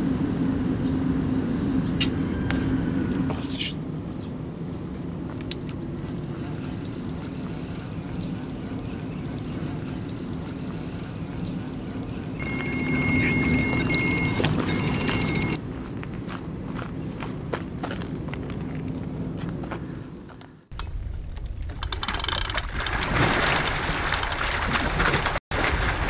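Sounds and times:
low background hum: 0.0s - 22.6s
bite alarm high tone: 12.4s - 15.6s.

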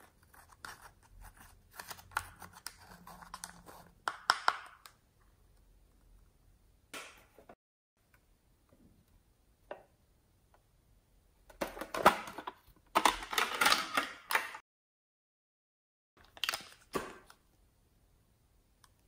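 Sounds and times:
plastic items clicking and rattling: 11.5s - 14.6s.

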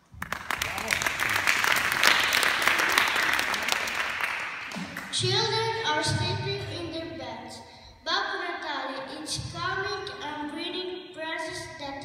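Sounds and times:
audience applauding: 0.2s - 5.2s.

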